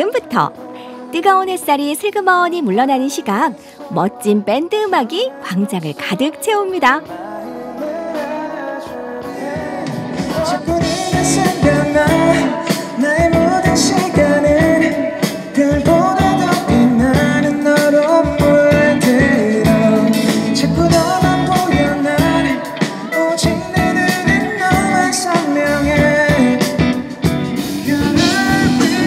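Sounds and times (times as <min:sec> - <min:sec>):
guitar: 0:00.0 - 0:29.0
man singing into microphone: 0:05.3 - 0:29.0
drum beat: 0:09.6 - 0:29.0.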